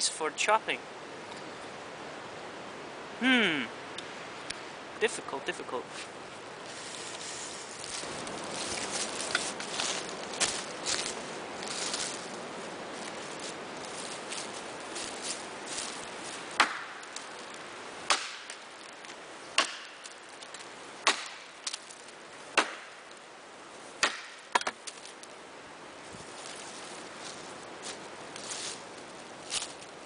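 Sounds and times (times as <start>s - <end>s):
axe chopping log: 16.6s - 17.0s, 18.1s - 18.6s, 19.6s - 20.1s, 21.0s - 21.8s, 22.6s - 23.0s, 24.0s - 24.8s.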